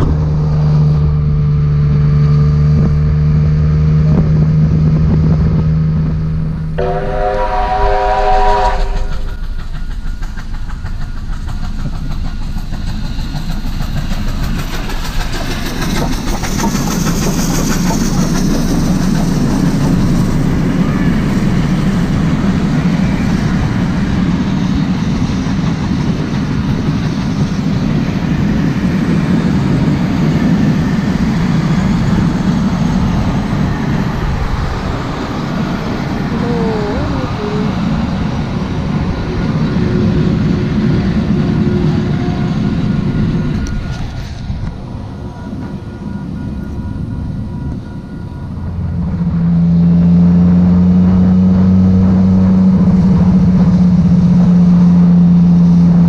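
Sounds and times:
train rumbling past: 0:00.0 - 0:56.0
steam locomotive whistle: 0:06.8 - 0:09.4
wheels clicking over rail joints: 0:08.8 - 0:20.8.

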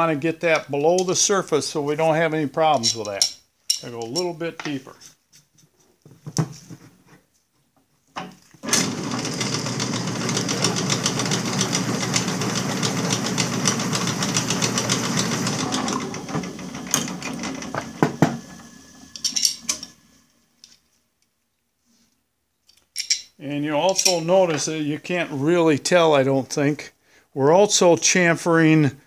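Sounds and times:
drill press running: 0:08.6 - 0:20.4
drill press spinning down: 0:08.6 - 0:20.4.

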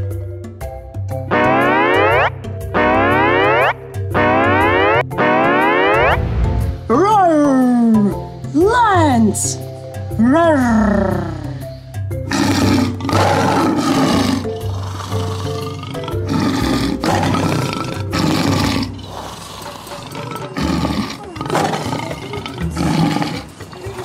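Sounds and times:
background music: 0:00.0 - 0:24.0
lion roaring: 0:12.2 - 0:24.0.

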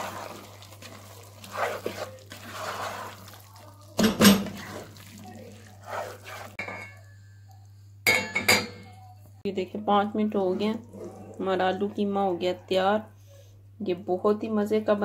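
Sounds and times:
spoon stirring and scraping pot: 0:00.0 - 0:07.3.

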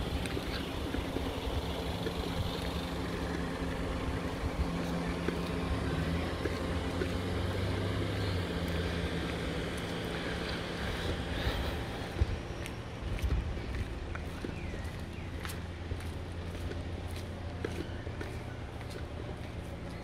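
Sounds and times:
engine droning: 0:00.0 - 0:20.0.

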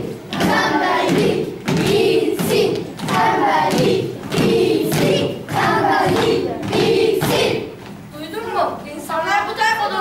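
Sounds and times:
children chanting: 0:00.0 - 0:07.8
thuds: 0:00.3 - 0:07.6.

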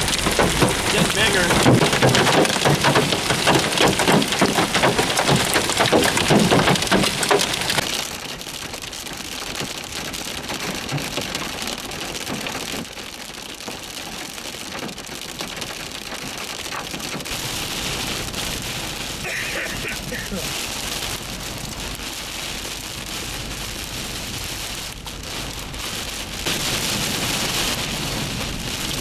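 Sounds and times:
hail and heavy rain pelting: 0:00.0 - 0:29.0
rain and hail on moving vehicle: 0:00.0 - 0:29.0.

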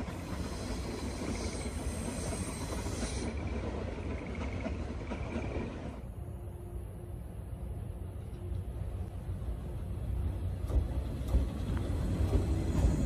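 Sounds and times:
faint high wheel squeal: 0:00.0 - 0:04.6
distant train rumbling on rails: 0:00.0 - 0:13.0.

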